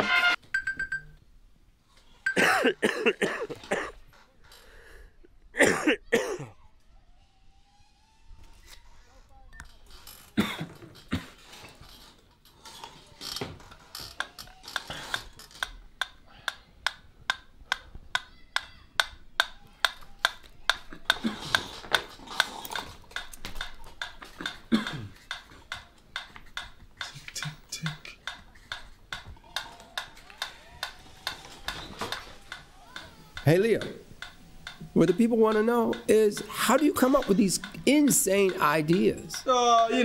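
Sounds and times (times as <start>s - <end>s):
metronome ticking: 32.1s - 39.5s.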